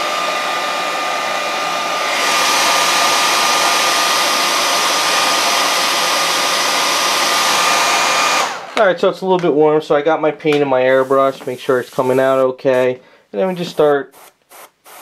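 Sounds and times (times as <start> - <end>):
hair dryer running: 0.0 - 8.8, 10.9 - 12.9.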